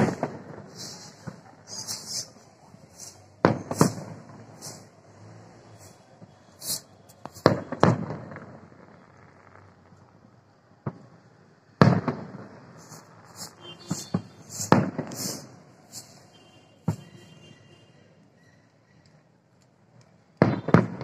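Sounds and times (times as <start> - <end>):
fireworks crackles: 0.0 - 17.8, 18.6 - 21.0
fireworks bangs: 0.0 - 17.9, 20.3 - 21.0.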